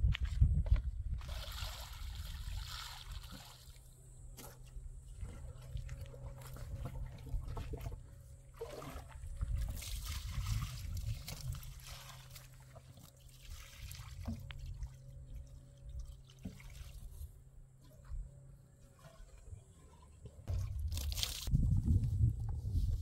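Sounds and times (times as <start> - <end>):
water pouring and splashing: 1.2 - 3.8, 5.1 - 17.3, 19.0 - 21.5.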